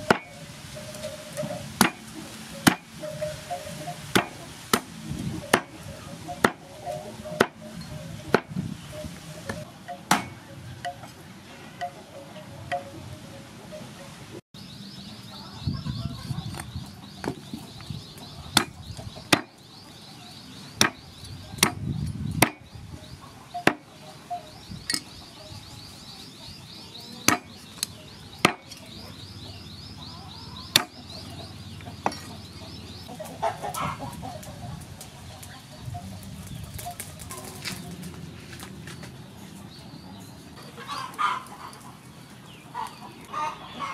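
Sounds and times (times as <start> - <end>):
cleaver chopping on wooden block: 1.8 - 2.0, 10.1 - 10.3, 18.6 - 19.5, 21.6 - 21.8, 22.4 - 22.6, 27.3 - 27.5.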